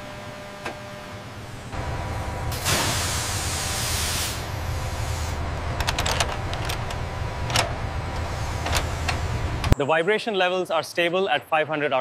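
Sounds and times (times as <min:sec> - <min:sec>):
low machine hum: 0:00.0 - 0:09.8
loud hiss: 0:02.5 - 0:05.4.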